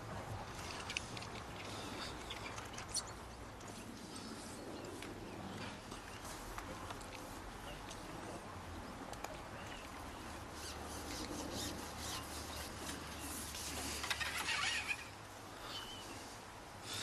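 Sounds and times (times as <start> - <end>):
fishing pole rubbing and clicking: 10.5 - 15.2.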